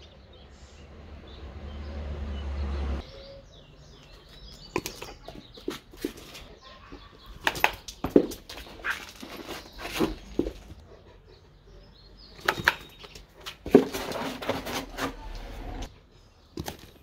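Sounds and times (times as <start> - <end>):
dog snapping with plastic clacks: 7.4 - 9.2.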